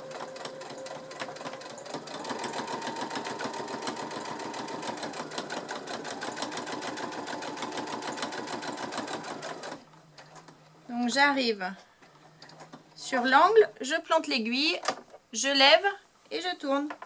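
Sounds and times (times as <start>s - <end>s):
electric sewing machine stitching: 0.0s - 9.8s.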